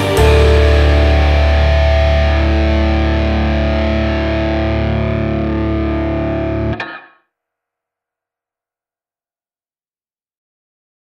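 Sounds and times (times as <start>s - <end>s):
distorted guitar chord: 0.0s - 7.1s
rock music: 0.0s - 7.1s.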